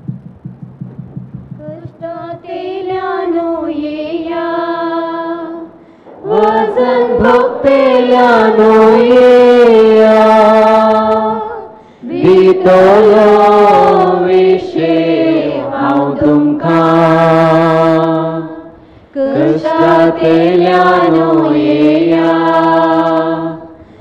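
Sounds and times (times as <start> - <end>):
person singing a slow hymn: 1.6 - 24.0.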